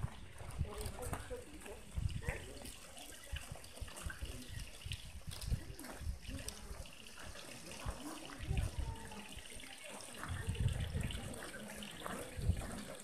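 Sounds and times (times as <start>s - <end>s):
faint voices talking: 0.0s - 13.0s.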